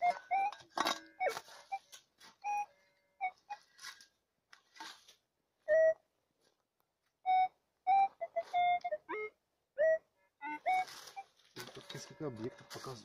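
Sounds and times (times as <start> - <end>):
metal detector beeps: 0.0 - 3.6, 7.3 - 13.0.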